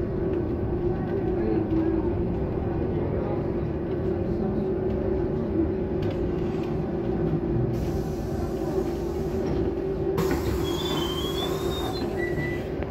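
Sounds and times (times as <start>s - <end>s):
trolleybus cabin hum: 0.0s - 12.9s
air hiss: 10.2s - 12.6s.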